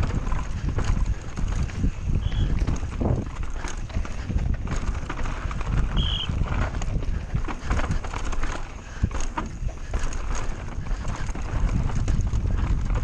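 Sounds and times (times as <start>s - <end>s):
bike rattling: 0.0s - 13.0s
tyres crunching over stones: 0.0s - 13.0s.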